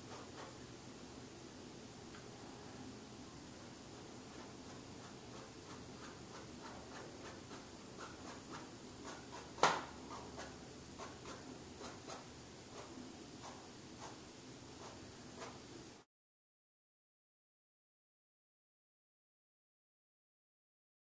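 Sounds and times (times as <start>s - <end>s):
drawing tool scratching canvas: 4.3s - 15.7s
sharp tap: 9.6s - 9.9s.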